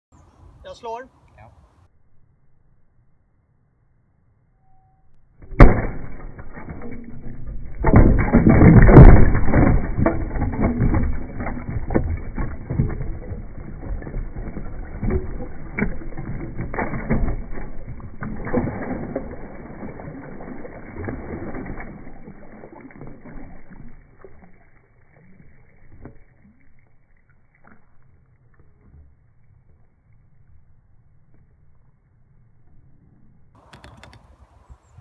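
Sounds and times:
slowed ice fragments knocking: 0:05.4 - 0:26.2.

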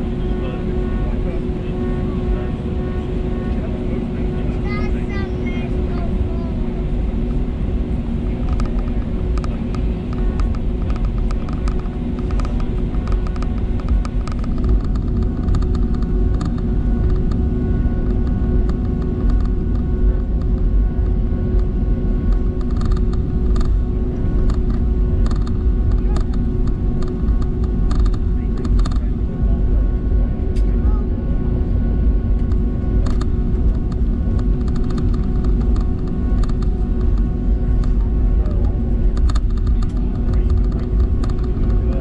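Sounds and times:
airplane cabin engine rumble: 0:00.0 - 0:42.0
steady hum tones: 0:00.0 - 0:42.0.

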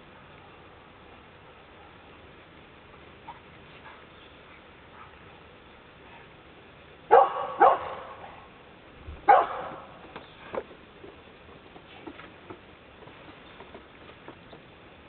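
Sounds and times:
dog barking: 0:07.1 - 0:08.5, 0:09.3 - 0:10.0.

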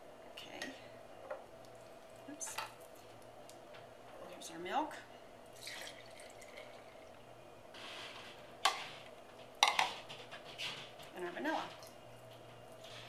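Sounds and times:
milk pouring into a jar: 0:05.5 - 0:07.1.

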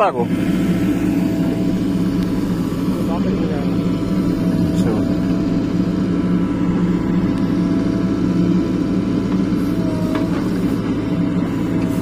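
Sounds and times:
diesel engine under load: 0:00.0 - 0:12.0
steady whine: 0:00.0 - 0:12.0.

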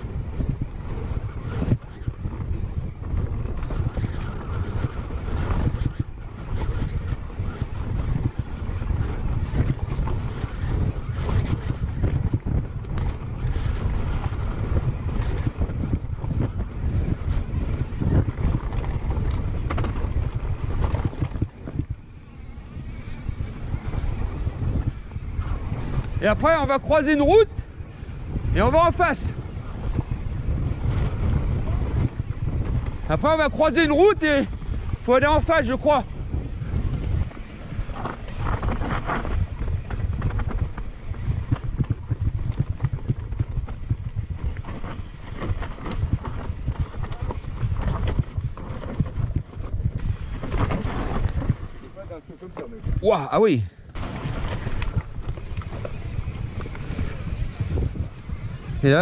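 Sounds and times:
bike knocks and rattles: 0:00.0 - 0:53.0, 0:53.9 - 0:59.0
wind buffeting microphone: 0:00.0 - 0:59.0
tyres rumbling on dirt: 0:13.1 - 0:59.0
bike rattling knocks: 0:34.2 - 0:53.0.

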